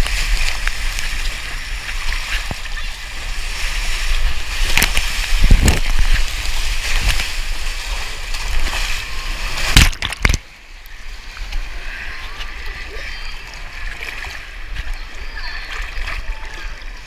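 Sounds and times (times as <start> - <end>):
water rushing down a slide: 0.0 - 17.0
splash into pool: 2.1 - 10.5.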